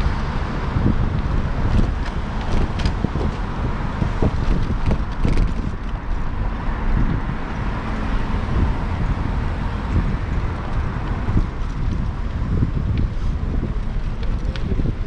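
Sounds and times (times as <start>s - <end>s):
road traffic: 0.0s - 15.0s
wind buffeting microphone: 0.0s - 15.0s.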